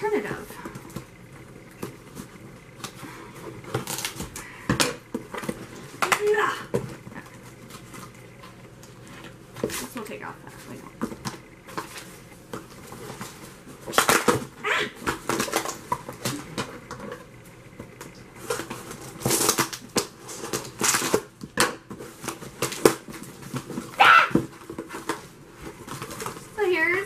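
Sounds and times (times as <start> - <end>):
packing tape ripping: 3.7 - 4.4, 18.4 - 21.3.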